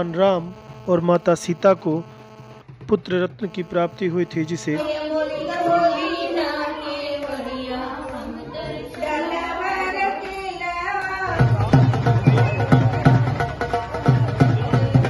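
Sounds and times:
steady drum beat: 0:00.0 - 0:05.2, 0:11.2 - 0:15.0.

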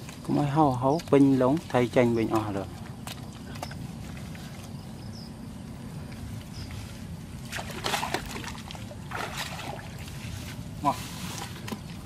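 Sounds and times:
hands squelching wet mud: 0:00.0 - 0:04.8, 0:06.1 - 0:12.0
wet mud slaps: 0:02.2 - 0:03.8.

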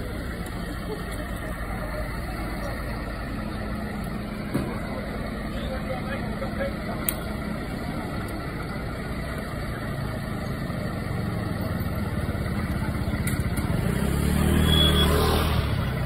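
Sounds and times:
fire engines idling rumble: 0:00.0 - 0:14.2
motor scooter passing: 0:09.0 - 0:16.0.

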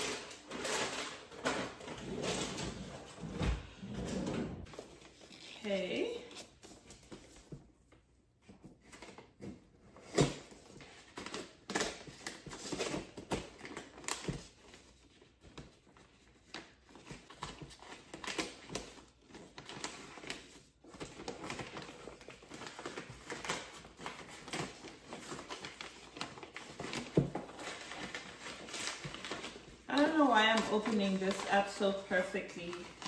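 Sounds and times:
wrapping paper rustling and crinkling: 0:00.0 - 0:03.2, 0:04.6 - 0:33.0.

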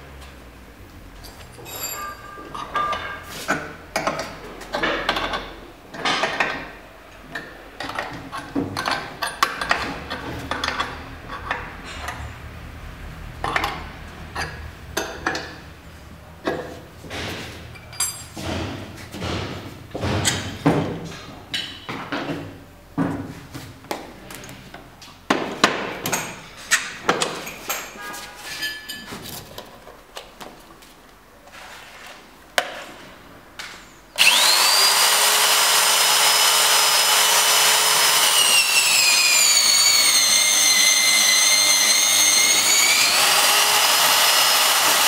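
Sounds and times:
metallic clanks and clinks: 0:01.2 - 0:03.4, 0:17.7 - 0:18.6, 0:26.0 - 0:29.2.

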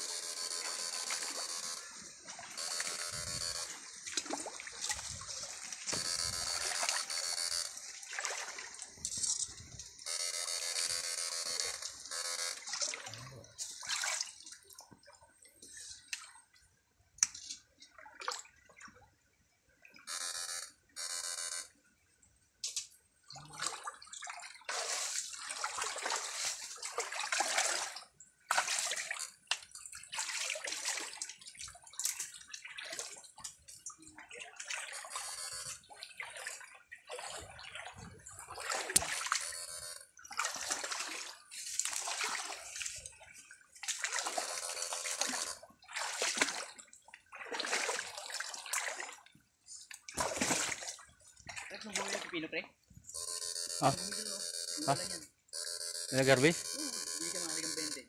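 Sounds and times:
feet splashing through water: 0:00.8 - 0:09.8, 0:12.7 - 0:14.8, 0:23.6 - 0:49.3, 0:50.0 - 0:52.3.

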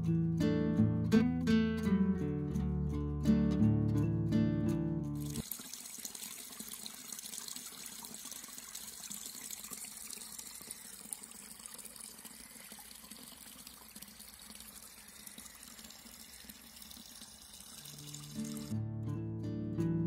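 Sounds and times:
water splashing into a pool: 0:05.2 - 0:18.8.

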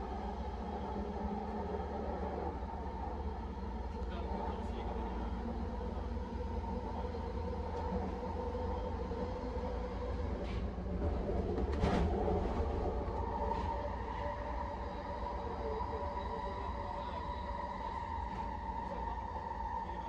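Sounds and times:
metro train rumble and hum: 0:00.0 - 0:20.0.

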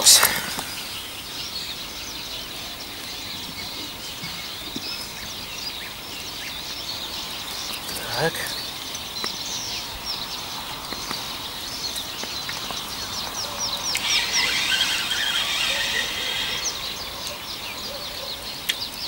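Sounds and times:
songbirds chirping: 0:00.0 - 0:19.0
fishing line paying off a reel: 0:14.0 - 0:17.0.

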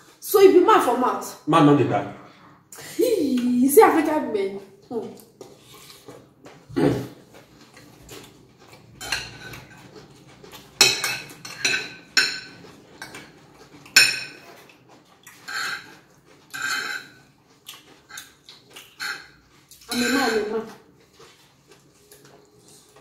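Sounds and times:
chewing: 0:05.0 - 0:11.4, 0:12.5 - 0:20.0, 0:20.6 - 0:23.0
cutlery clinking on plates: 0:07.7 - 0:20.6.

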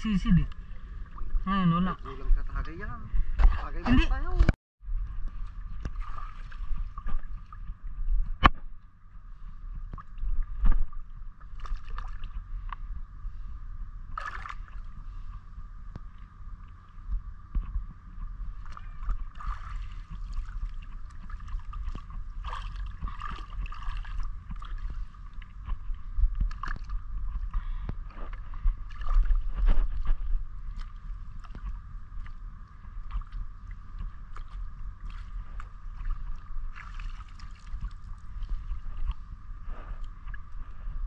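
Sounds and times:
low rumble on microphone: 0:00.0 - 0:41.0
water splashing from wading: 0:05.4 - 0:07.8, 0:09.8 - 0:12.4, 0:14.1 - 0:15.0, 0:18.6 - 0:27.4, 0:28.4 - 0:39.2.

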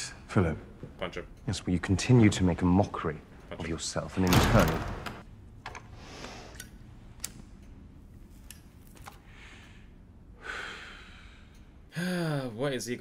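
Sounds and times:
soft breathy rush: 0:09.2 - 0:12.2.

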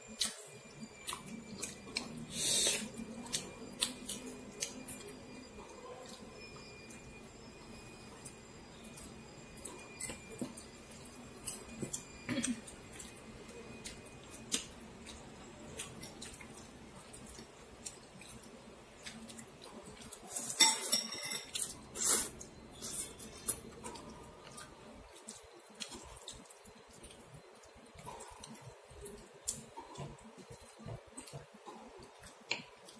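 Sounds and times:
chopsticks and spoon clinking bowl: 0:19.1 - 0:24.6.

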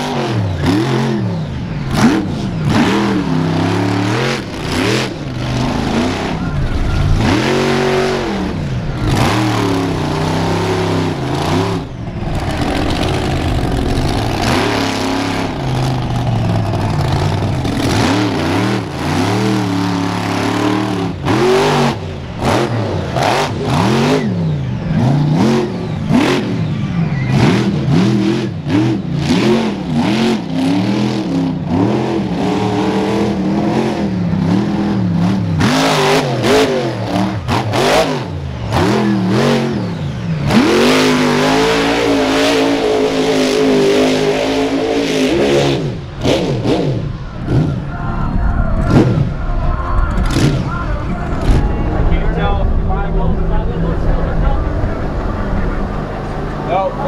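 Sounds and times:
monster truck engine revving: 0:00.0 - 0:57.0.

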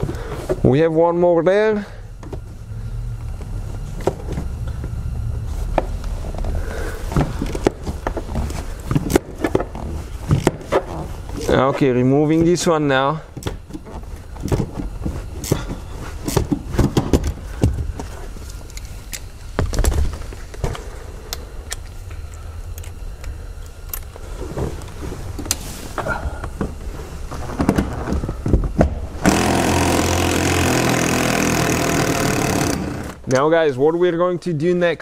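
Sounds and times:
cordless power driver running: 0:29.2 - 0:33.2.

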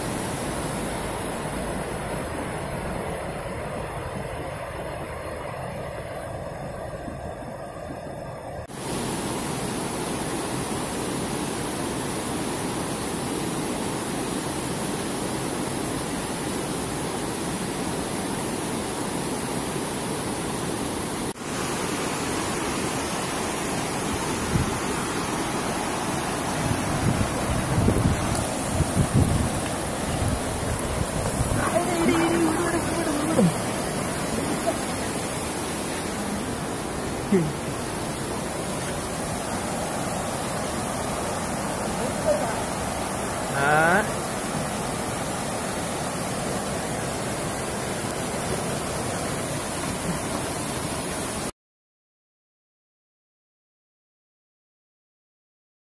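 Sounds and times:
river rapids rushing over rocks: 0:00.0 - 0:04.7, 0:08.7 - 0:51.5
wind buffeting microphone: 0:26.2 - 0:37.1.

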